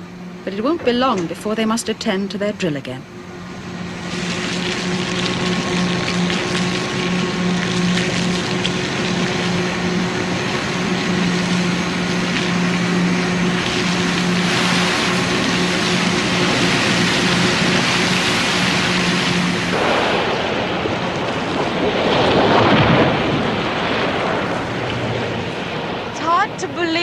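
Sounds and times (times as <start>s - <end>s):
machinery drone with low hum: 0.0s - 27.0s
water spraying from a hose: 4.0s - 26.4s.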